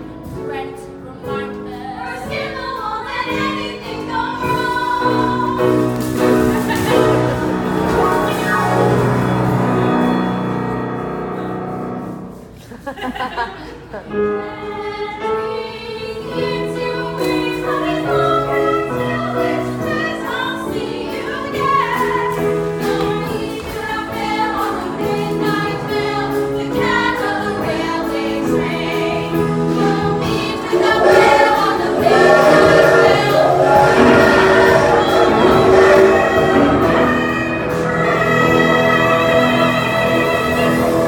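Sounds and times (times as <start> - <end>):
instrumental accompaniment: 4.4 - 12.6, 28.7 - 41.0
cast singing in chorus: 29.7 - 41.0.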